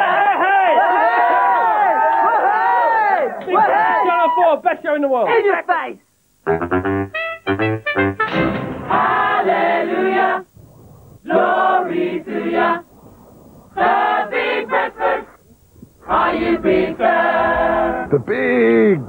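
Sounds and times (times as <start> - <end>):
group of voices singing: 8.8 - 10.5, 11.2 - 12.9, 13.8 - 15.4, 16.0 - 18.5.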